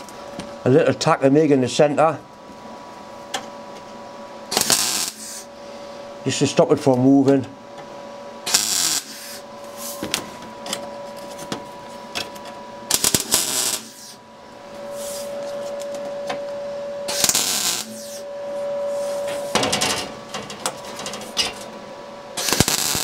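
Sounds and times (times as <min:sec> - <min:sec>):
welder bursts: 0:04.5 - 0:05.5, 0:08.4 - 0:10.0, 0:12.9 - 0:14.2, 0:17.1 - 0:18.2, 0:22.4 - 0:23.0.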